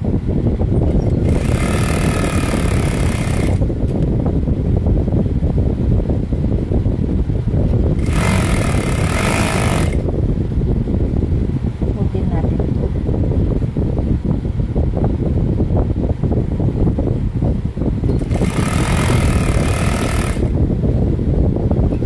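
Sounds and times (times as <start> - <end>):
steady low rumble: 0.0 - 22.0
sewing machine stitching: 1.0 - 3.7, 8.0 - 10.0, 18.1 - 20.6.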